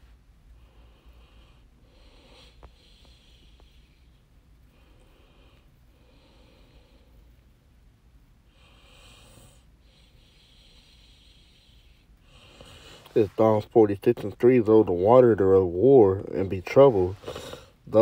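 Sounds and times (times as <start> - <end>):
faint low hum: 0.0 - 18.0
soft hissing: 8.6 - 13.8, 16.2 - 18.0.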